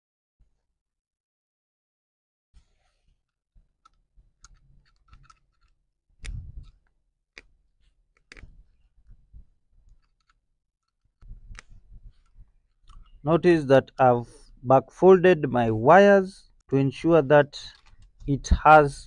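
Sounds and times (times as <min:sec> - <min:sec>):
screwdriver clicking and scraping metal: 0:03.8 - 0:07.5, 0:09.8 - 0:13.2, 0:17.7 - 0:18.3.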